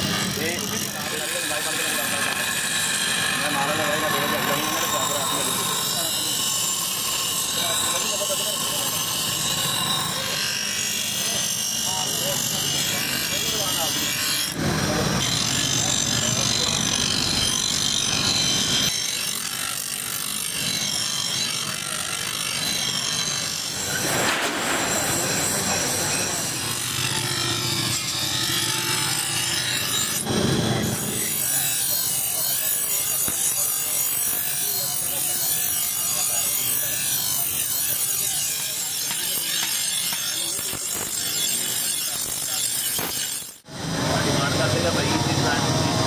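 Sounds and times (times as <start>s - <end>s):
knife grinding on grinding wheel: 0.0s - 43.7s.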